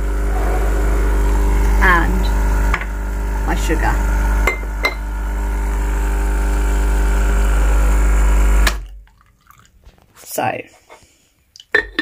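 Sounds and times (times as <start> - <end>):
coffee machine pump humming: 2.6 - 8.7.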